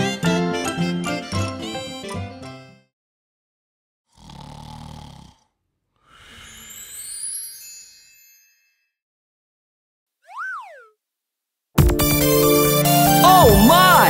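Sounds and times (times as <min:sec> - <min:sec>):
cartoon snoring: 0:04.1 - 0:06.7
breathy exhale with rising whistle: 0:06.0 - 0:07.2
children's song: 0:13.2 - 0:14.0.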